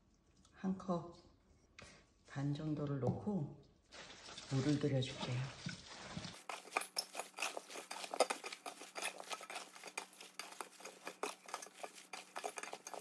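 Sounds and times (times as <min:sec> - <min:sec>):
vegetables tossed in metal bowl: 0:04.0 - 0:13.0.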